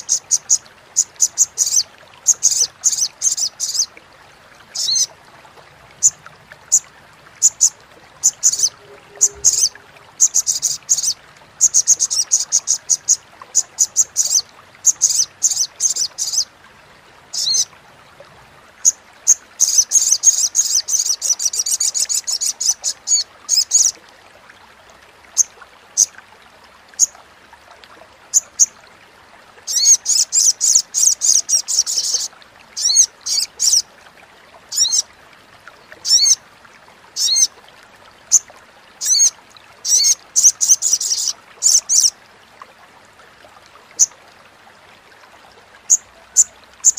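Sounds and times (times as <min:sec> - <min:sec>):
bird chattering call: 0:08.3 - 0:12.7.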